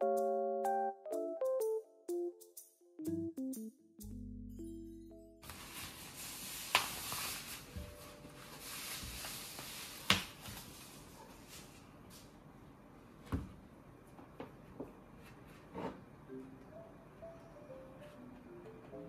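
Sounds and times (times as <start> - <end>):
plastic wrapping rustling: 5.4 - 11.8.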